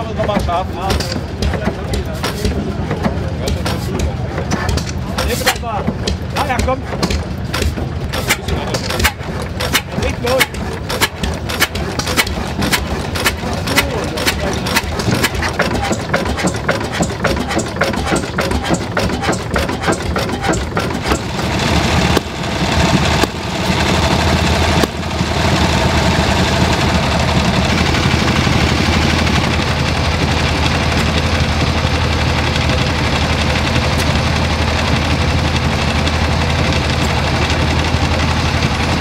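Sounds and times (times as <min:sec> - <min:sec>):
single-cylinder engine running slowly: 0:00.0 - 0:39.0
two-cylinder engine running faster: 0:00.0 - 0:39.0.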